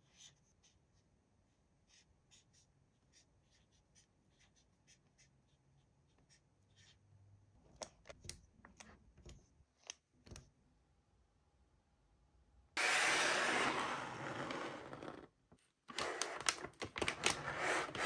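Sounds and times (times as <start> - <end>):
marker pen scratching on paper: 0.0 - 7.0, 17.4 - 18.0.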